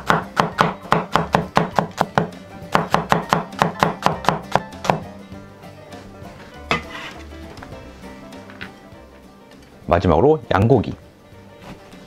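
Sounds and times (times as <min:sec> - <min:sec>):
cleaver chopping on wooden board: 0:00.0 - 0:05.1.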